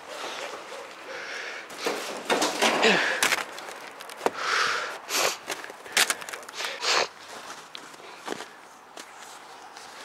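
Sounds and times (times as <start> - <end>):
climbing on metal roof sheeting: 1.7 - 3.8.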